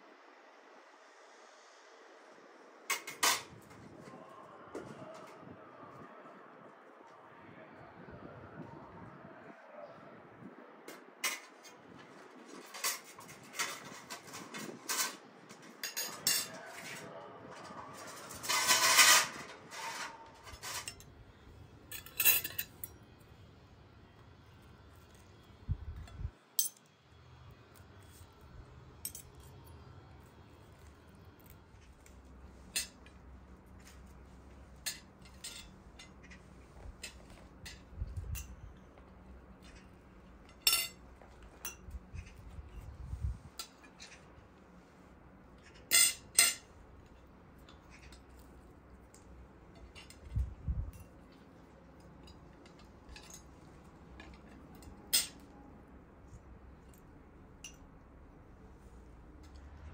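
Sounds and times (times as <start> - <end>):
cutlery clinking on china plates: 15.8 - 21.2, 21.9 - 23.0, 34.8 - 36.4, 39.6 - 42.3, 45.7 - 46.7.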